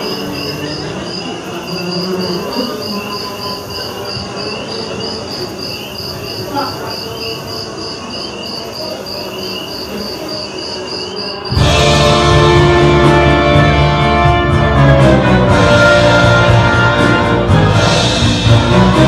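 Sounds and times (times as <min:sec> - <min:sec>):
insect-like chirping: 0:00.0 - 0:11.6.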